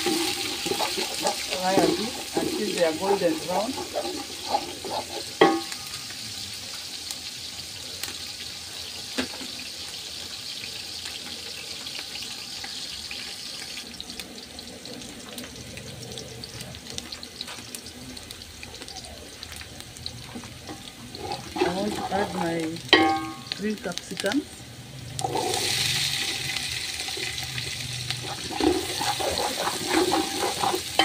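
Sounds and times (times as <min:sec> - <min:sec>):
onions sizzling in oil: 0:00.0 - 0:31.0
wooden spoon knocking pot: 0:05.4 - 0:05.7, 0:22.9 - 0:23.6.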